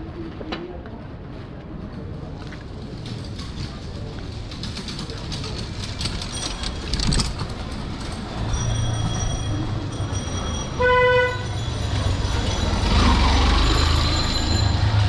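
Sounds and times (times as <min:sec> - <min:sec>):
vehicle horn toot: 0:10.8 - 0:11.6.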